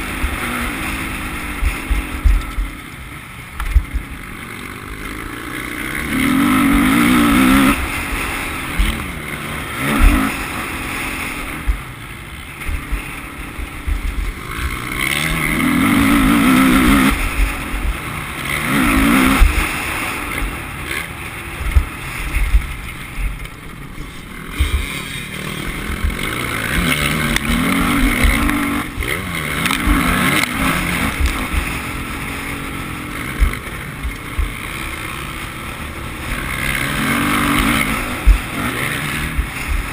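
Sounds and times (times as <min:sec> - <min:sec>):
motocross bike engine revving: 0:00.0 - 0:39.9
wind rumble: 0:11.1 - 0:39.9.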